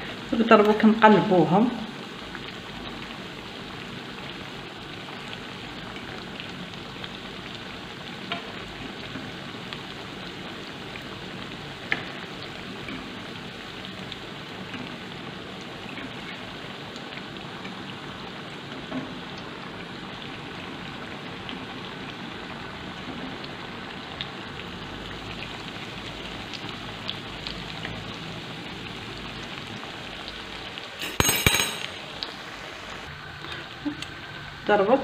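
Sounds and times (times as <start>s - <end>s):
hot oil sizzling: 0.0s - 35.0s
metal fork clinking: 31.0s - 32.0s.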